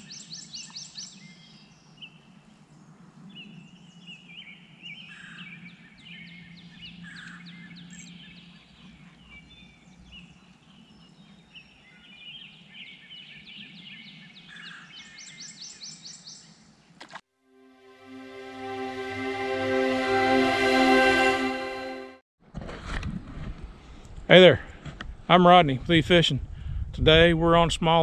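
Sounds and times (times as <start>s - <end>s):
songbirds chirping and trilling: 0.0s - 16.8s.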